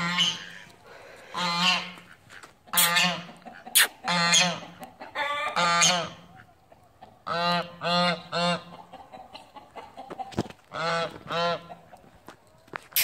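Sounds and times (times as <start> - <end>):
goose honking: 0.0 - 6.6, 7.2 - 8.9, 10.7 - 11.8.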